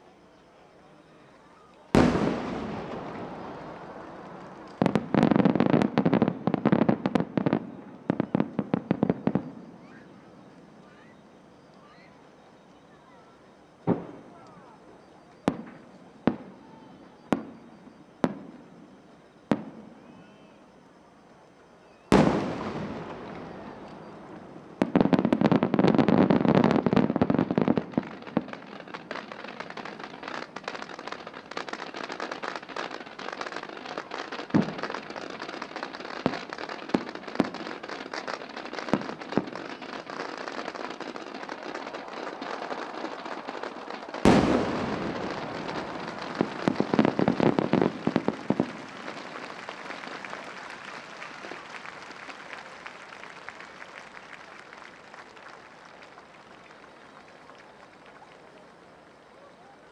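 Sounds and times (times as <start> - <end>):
dense firework crackling: 0.0 - 59.9
fireworks exploding: 1.0 - 59.9
big rolling firework boom: 2.0 - 7.5, 43.4 - 50.7
scattered pops: 27.6 - 58.4.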